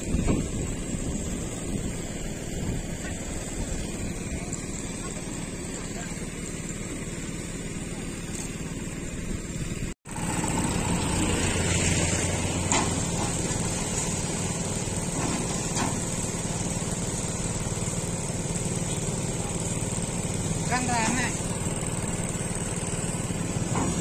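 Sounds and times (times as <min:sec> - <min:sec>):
diesel engine running: 0:00.0 - 0:24.0
knocks on steel ramps: 0:23.1 - 0:24.0.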